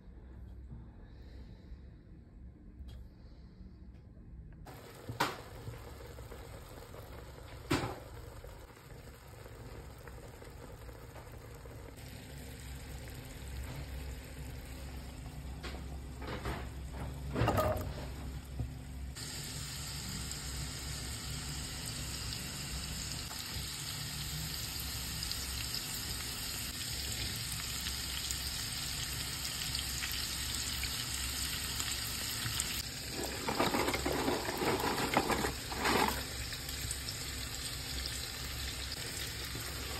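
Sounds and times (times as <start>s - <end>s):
food sizzling in hot oil: 19.1s - 39.9s
wooden spatula scraping pot: 33.1s - 36.3s.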